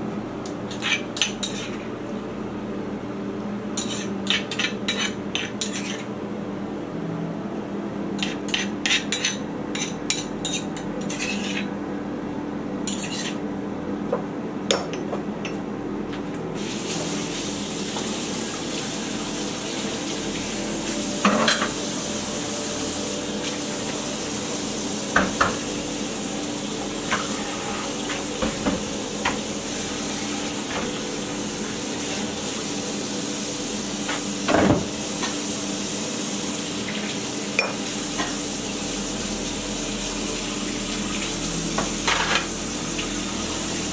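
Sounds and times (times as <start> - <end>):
tap water running: 16.6 - 43.9
dishes clinking and clattering: 21.2 - 21.8, 42.0 - 42.5.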